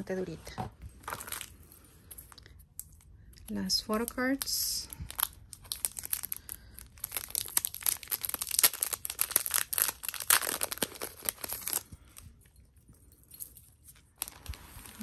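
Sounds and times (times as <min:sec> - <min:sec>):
plastic wrapping crinkling: 0:01.0 - 0:03.0, 0:03.6 - 0:12.6, 0:13.8 - 0:15.0.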